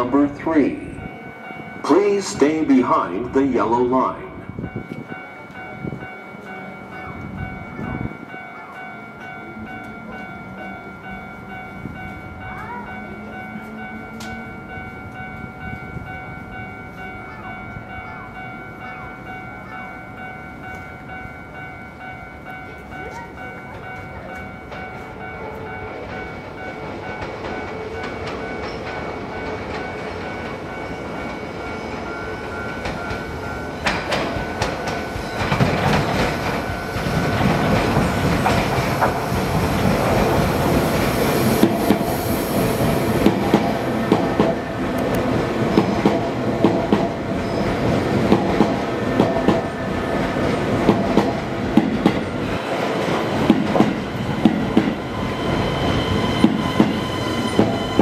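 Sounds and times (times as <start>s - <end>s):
electric train running noise: 0.0s - 58.0s
train wheels clicking over rail joints: 26.0s - 58.0s.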